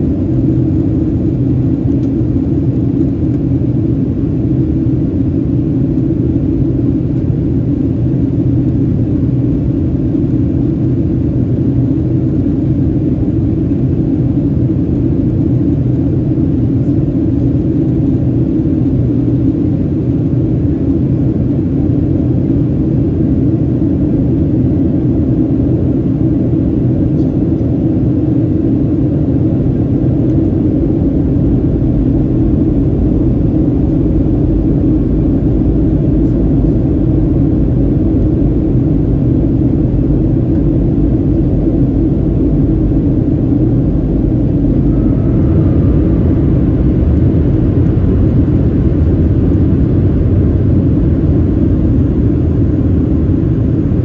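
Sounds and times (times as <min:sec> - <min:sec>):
jet engines rumbling: 0:00.0 - 0:54.0
rushing air: 0:30.0 - 0:54.0.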